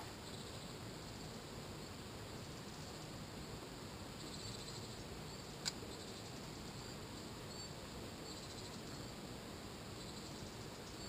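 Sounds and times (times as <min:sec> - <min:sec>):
low steady hiss: 0:00.0 - 0:11.0
faint high chirps: 0:04.2 - 0:09.1.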